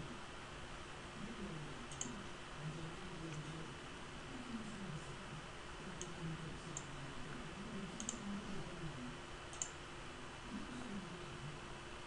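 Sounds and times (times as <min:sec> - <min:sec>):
computer mouse button clicking: 0:08.0 - 0:08.2.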